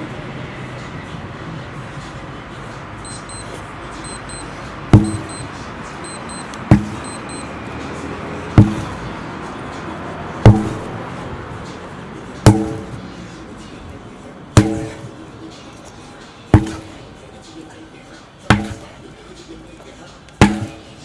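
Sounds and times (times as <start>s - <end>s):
sledgehammer blows: 4.9s - 5.5s, 6.7s - 7.2s, 8.5s - 9.0s, 10.4s - 10.9s, 12.4s - 13.0s, 14.5s - 15.1s, 16.5s - 17.0s, 18.5s - 18.9s, 20.4s - 20.9s.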